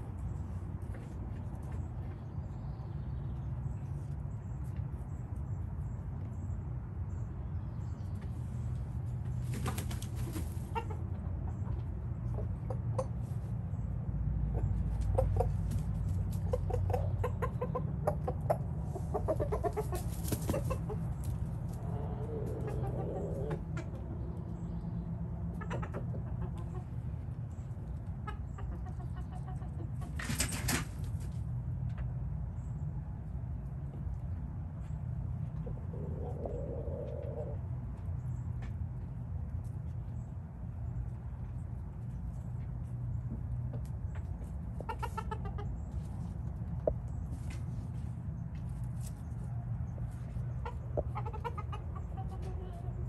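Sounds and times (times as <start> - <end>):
chickens clucking softly: 0.0 - 53.0
rooster flapping wings: 9.4 - 10.7, 20.0 - 20.8.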